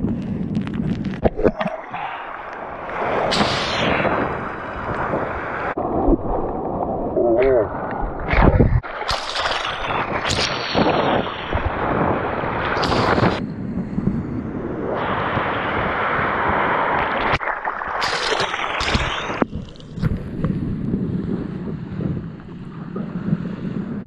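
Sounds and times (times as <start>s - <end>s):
wind buffeting microphone: 0.0s - 17.6s, 18.3s - 24.0s
water splashing: 1.0s - 13.4s, 15.0s - 20.7s
small breaking waves rushing: 1.3s - 13.4s, 15.0s - 24.0s.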